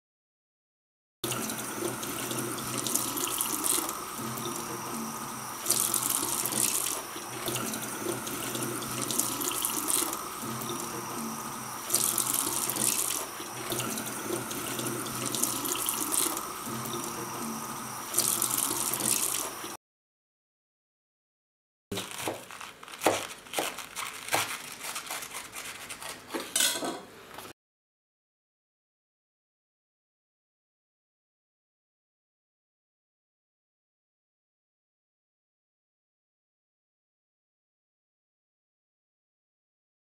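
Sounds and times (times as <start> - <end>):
tap water running into sink: 1.2 - 19.8
hands rubbing leaves in water: 22.0 - 26.4.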